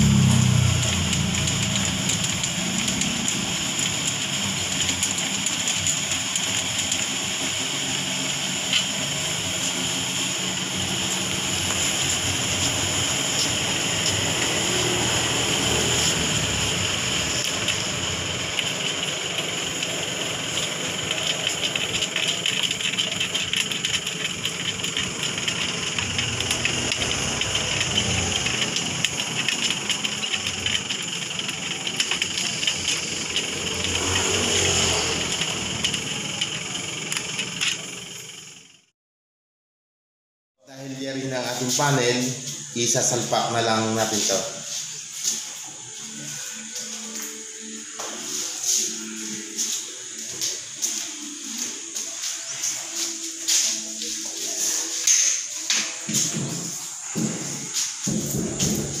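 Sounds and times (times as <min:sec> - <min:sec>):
engine running steadily: 0:00.0 - 0:38.8.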